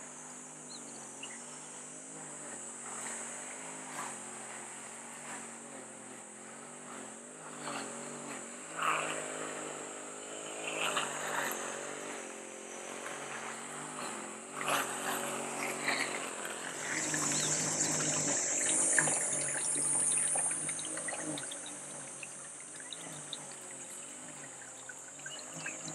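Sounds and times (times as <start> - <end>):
engine drone with hum: 0.0 - 25.9
high steady buzz: 14.4 - 25.9.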